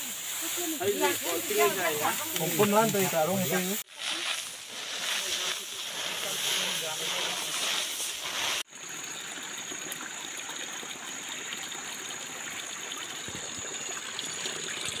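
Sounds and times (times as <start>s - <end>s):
loud hissing rush: 0.0s - 8.7s.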